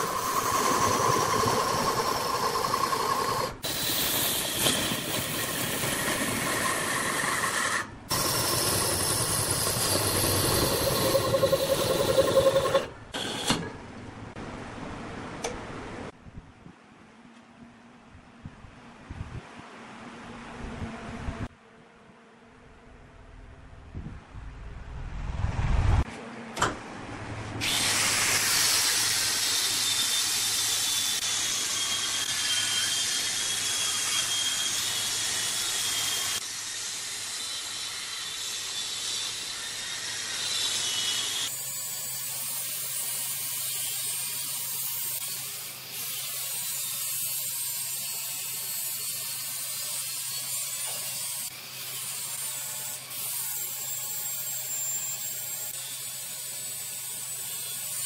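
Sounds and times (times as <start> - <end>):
lathe tool scraping wood: 0.0 - 13.8
low motor hum: 17.4 - 27.6
low rumble: 22.5 - 27.6.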